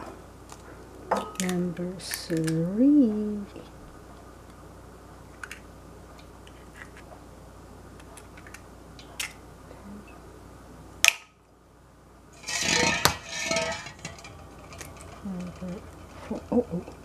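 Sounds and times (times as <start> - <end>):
clattering and rustling: 12.3 - 17.0.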